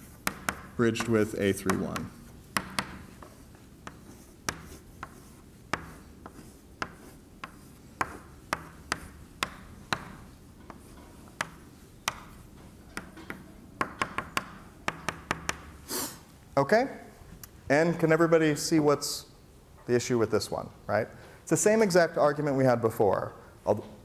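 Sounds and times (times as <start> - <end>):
chalk tapping on blackboard: 0.0 - 15.8
chalk scraping on blackboard: 0.0 - 16.1.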